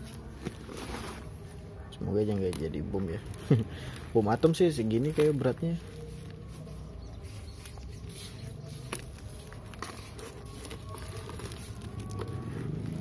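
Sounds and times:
plastic bag tearing and crinkling: 0:08.0 - 0:13.0.

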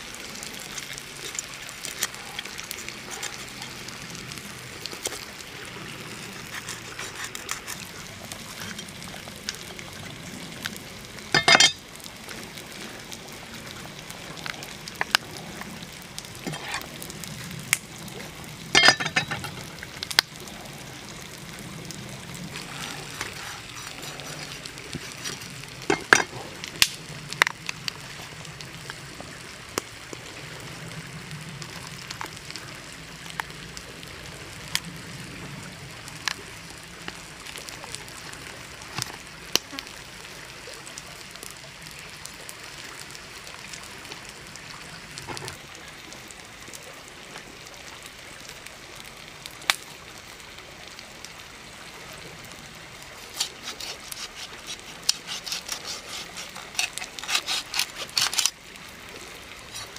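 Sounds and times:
wet tearing crackles: 0:00.2 - 0:12.8, 0:14.0 - 0:29.0, 0:52.9 - 0:59.9.

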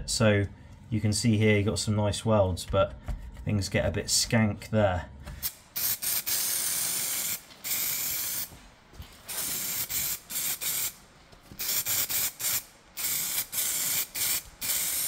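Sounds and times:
spray can hissing: 0:05.4 - 0:08.5, 0:09.3 - 0:11.0, 0:11.6 - 0:15.0.

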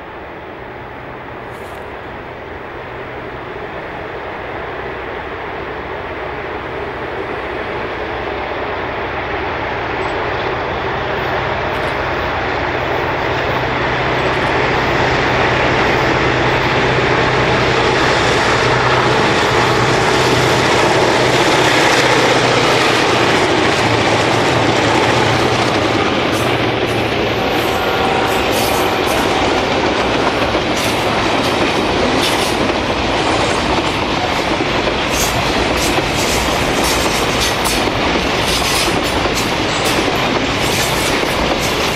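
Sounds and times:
diesel locomotives passing: 0:00.0 - 0:41.9
train wheels clicking over rail joints: 0:12.8 - 0:41.9.

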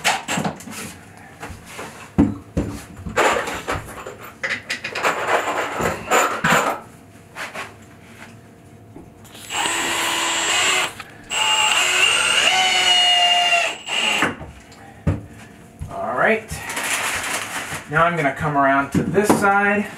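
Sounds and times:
cordless drill driving screws: 0:09.3 - 0:14.4.

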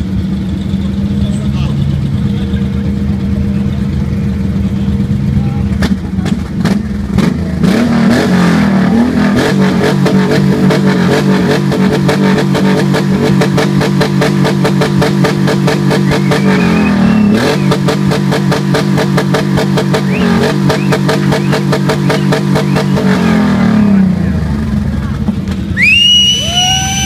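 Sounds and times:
motorcycle engine revving: 0:00.0 - 0:27.0.

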